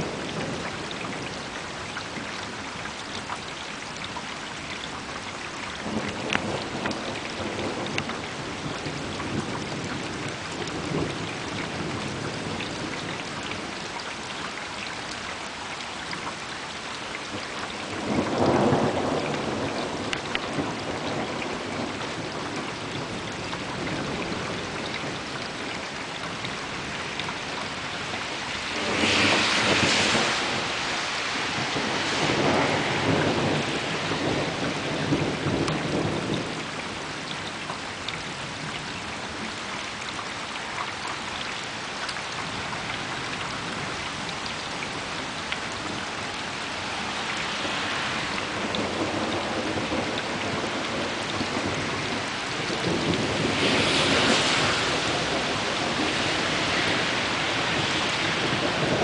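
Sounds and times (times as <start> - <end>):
rain falling: 0.0 - 59.0
thunder rolling: 28.7 - 36.9, 48.5 - 59.0.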